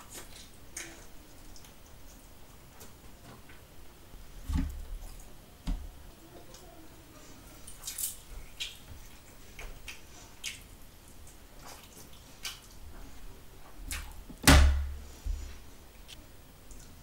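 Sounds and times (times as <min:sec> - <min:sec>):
lip smacks while chewing: 0:07.8 - 0:10.7.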